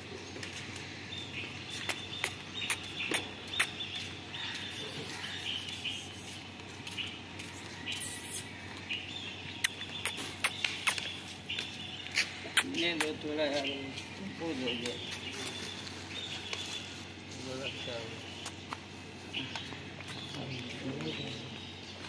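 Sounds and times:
small birds chirping: 0.0s - 22.0s
sharp clicks: 1.8s - 3.8s, 9.6s - 11.2s.

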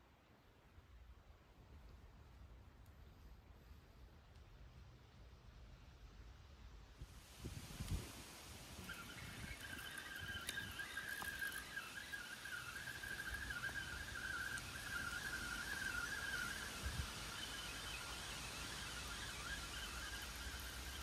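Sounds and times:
high whistling tone: 8.6s - 21.0s.

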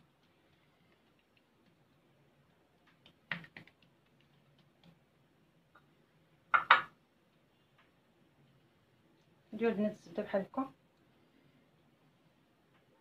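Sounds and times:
taps and clicks on countertop: 6.5s - 6.9s.

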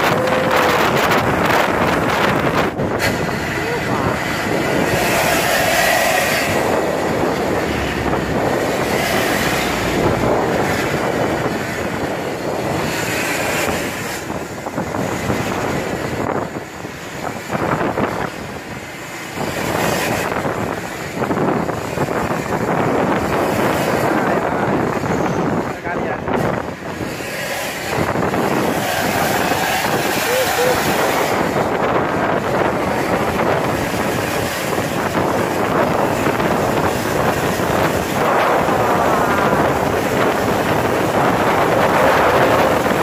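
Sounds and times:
truck exhaust jet-like whoosh: 0.0s - 43.0s.

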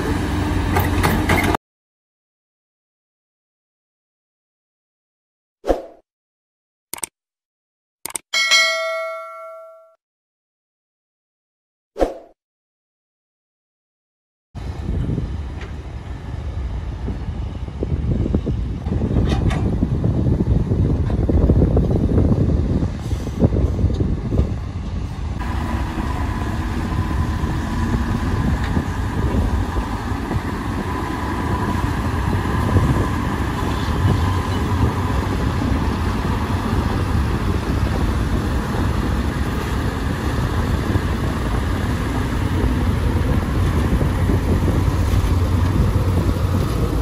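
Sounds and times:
diesel engines rumbling: 14.6s - 47.0s.

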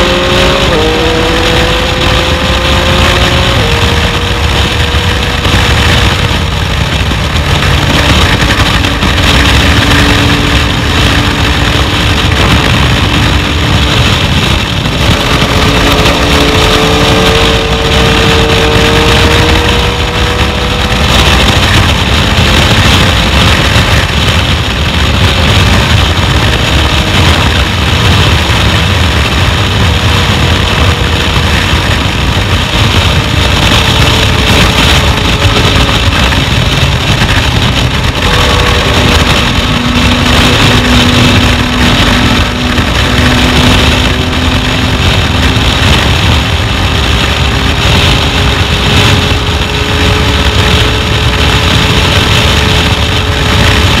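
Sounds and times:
motorcycle engine running: 0.0s - 54.0s
wind rush on microphone: 0.0s - 54.0s.

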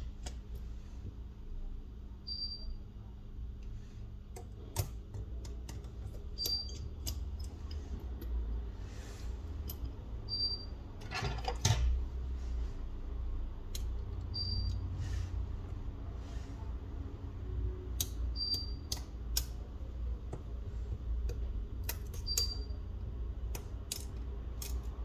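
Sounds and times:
low steady hum: 0.0s - 25.0s
tools clicking on phone parts: 4.3s - 8.4s, 9.6s - 10.1s, 17.9s - 20.6s, 21.2s - 25.0s.

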